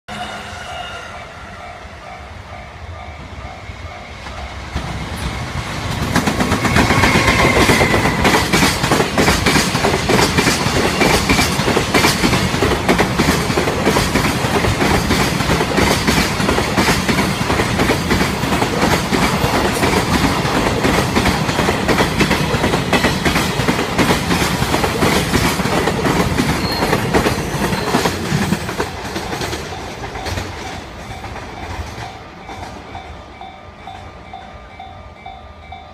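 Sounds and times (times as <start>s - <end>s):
freight train wagons clattering: 4.2s - 34.5s.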